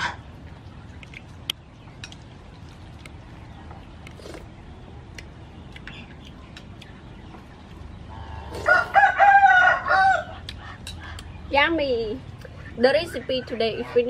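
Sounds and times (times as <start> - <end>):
rooster crowing: 8.1 - 10.4.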